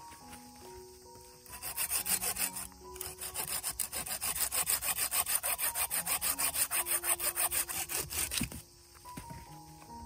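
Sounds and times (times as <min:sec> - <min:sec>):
hand saw cutting a branch: 0:01.5 - 0:08.6.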